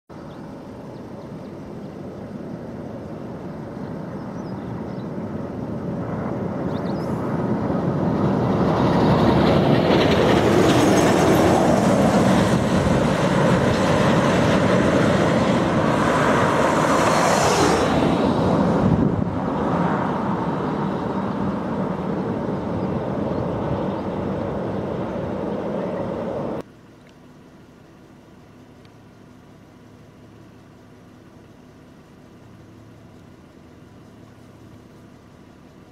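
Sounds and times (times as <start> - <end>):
vehicle passing: 5.8 - 26.6.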